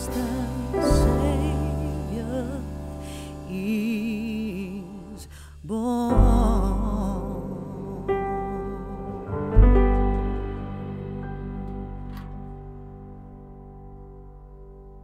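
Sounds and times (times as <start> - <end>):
song with vibrato singing: 0.0 - 12.4
deep bass: 0.0 - 15.0.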